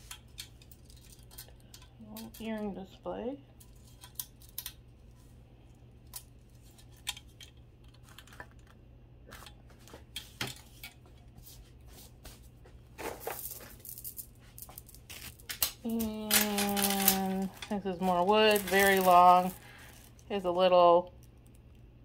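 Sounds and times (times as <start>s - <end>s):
faint low hum: 0.0s - 22.0s
jewelry clicking and clinking: 13.2s - 20.3s.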